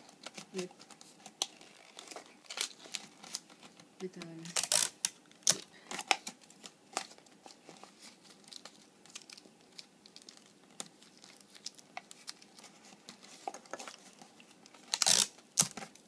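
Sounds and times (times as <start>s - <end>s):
paper crinkling and rustling: 0.0s - 16.0s.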